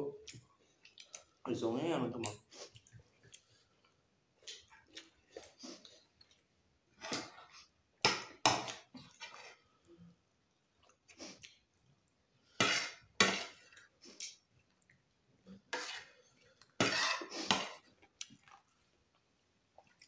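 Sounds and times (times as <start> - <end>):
spoons scraping and clinking on plates: 12.6 - 13.9, 15.6 - 17.9.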